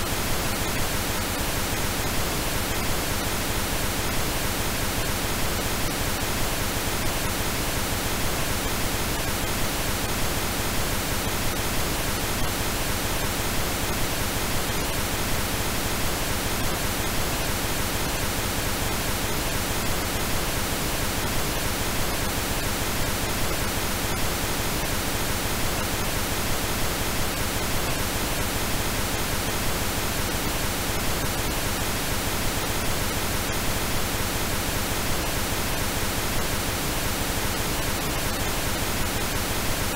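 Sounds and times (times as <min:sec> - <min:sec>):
steady pink noise hiss: 0:00.0 - 0:39.9.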